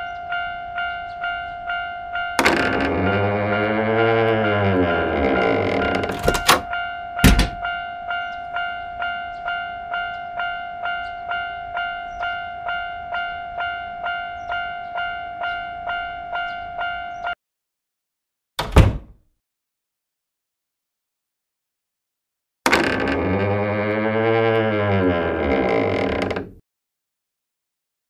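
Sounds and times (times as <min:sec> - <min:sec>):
level crossing warning bell: 0:00.0 - 0:17.4
steady warning tone: 0:01.3 - 0:08.6
loud knocks: 0:05.8 - 0:07.6
thump: 0:07.2 - 0:07.6, 0:18.6 - 0:19.1.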